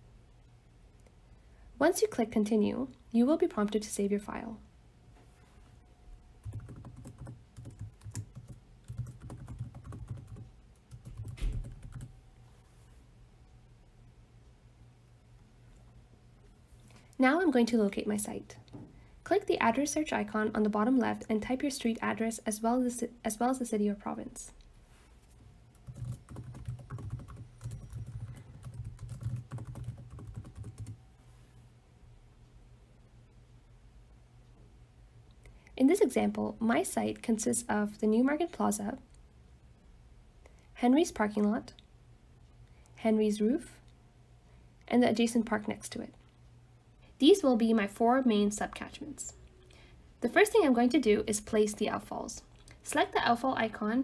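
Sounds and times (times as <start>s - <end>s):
keyboard typing clicks: 6.4s - 12.1s, 25.8s - 31.0s.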